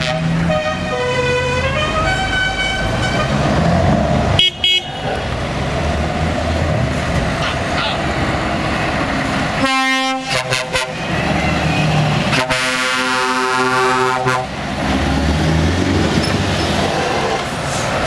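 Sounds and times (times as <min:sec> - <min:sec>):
truck horn blasts: 0:00.0 - 0:03.4, 0:04.4 - 0:05.0, 0:09.6 - 0:11.3, 0:12.2 - 0:14.6
diesel engines running: 0:00.0 - 0:18.0.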